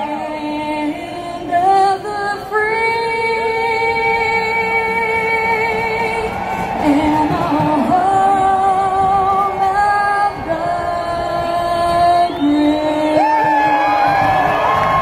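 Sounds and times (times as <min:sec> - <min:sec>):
woman singing over loudspeakers: 0:00.0 - 0:15.0
crowd whooping: 0:03.9 - 0:15.0.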